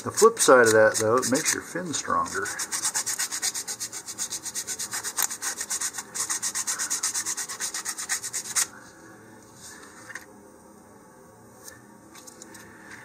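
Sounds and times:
sandpaper rubbing: 0.0 - 8.7.

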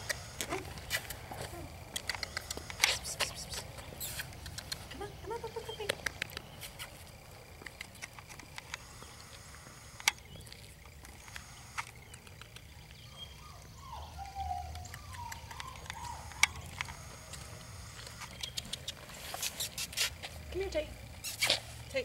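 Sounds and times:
puppy paws tapping: 0.1 - 9.1, 11.8 - 13.0
footsteps on asphalt: 0.4 - 1.7.

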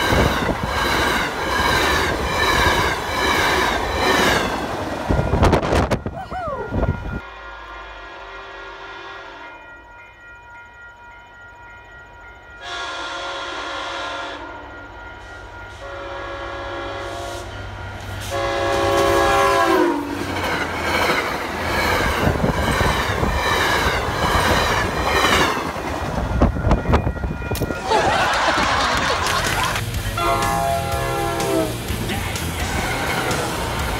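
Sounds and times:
train wheel clatter: 0.0 - 6.1, 20.0 - 33.9
crossing bell ringing: 0.0 - 33.9
locomotive horn blasts: 6.8 - 9.8, 12.6 - 14.8, 15.7 - 20.2, 30.1 - 32.0.

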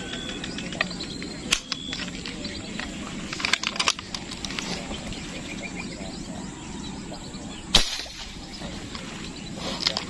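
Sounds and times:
airgun shot: 7.7 - 8.6.

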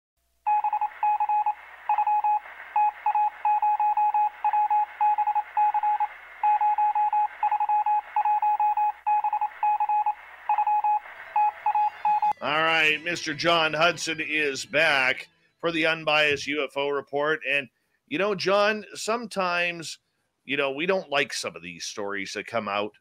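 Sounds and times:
touch-tone dialing beeps: 0.5 - 12.4.

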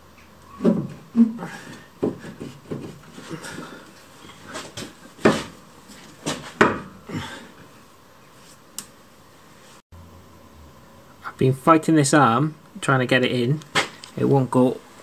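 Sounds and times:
metal clunks and knocks: 6.2 - 7.0.

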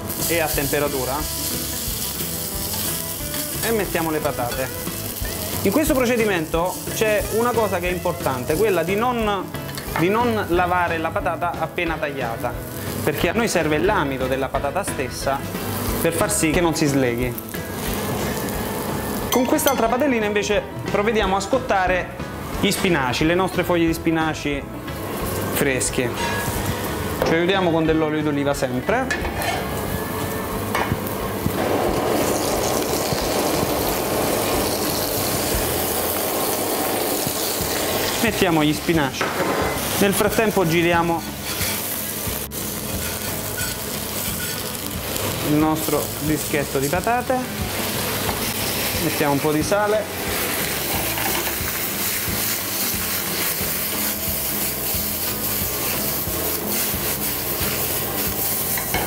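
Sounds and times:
oil sizzling in frying pans: 0.0 - 20.4, 24.3 - 27.6, 29.3 - 59.0
scratchy rubbing in pan: 41.2 - 42.0.

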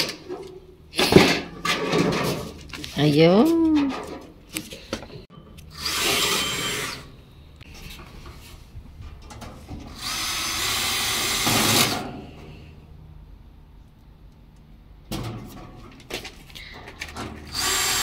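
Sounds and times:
power drill driving screws: 5.7 - 7.1, 9.9 - 12.0, 17.4 - 18.0.

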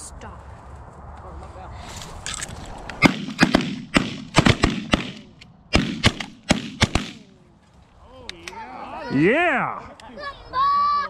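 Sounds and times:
shotgun shots: 3.0 - 7.4.

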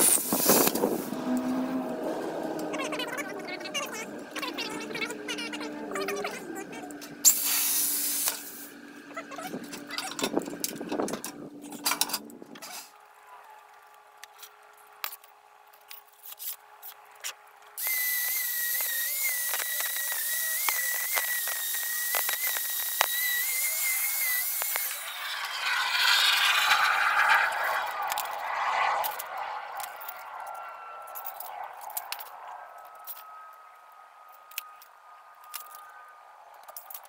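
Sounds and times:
plasma cutter hissing: 0.0 - 1.1, 7.2 - 8.7, 17.8 - 25.1.

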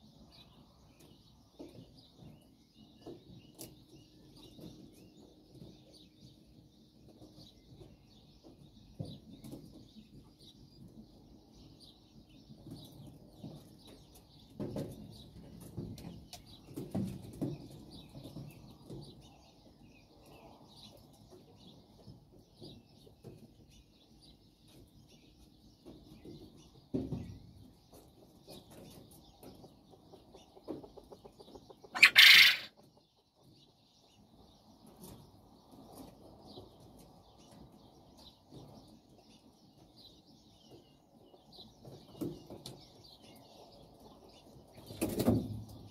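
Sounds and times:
quail scratching in bark chips: 31.9 - 32.8
harsh bird call: 32.0 - 32.7.

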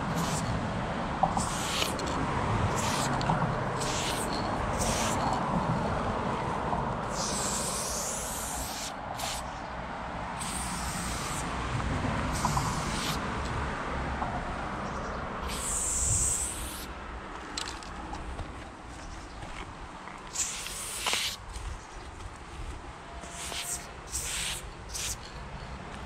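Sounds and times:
spray paint hissing: 0.0 - 0.6, 1.2 - 5.4, 7.0 - 9.6, 10.4 - 11.5, 12.2 - 13.3, 15.4 - 16.9, 20.3 - 21.5, 23.2 - 25.4.

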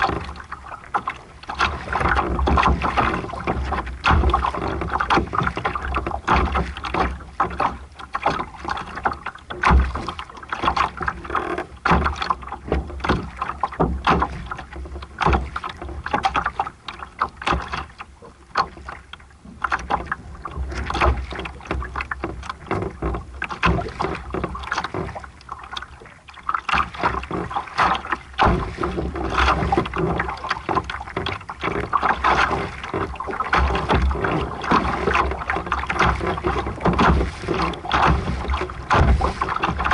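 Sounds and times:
water splashing against a hull: 0.0 - 39.9
wind rumble on microphone: 26.9 - 39.9.

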